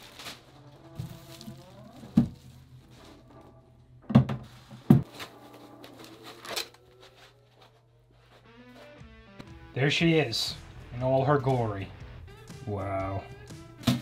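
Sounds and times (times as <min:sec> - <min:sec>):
foam packing rubbing: 0:00.0 - 0:03.2.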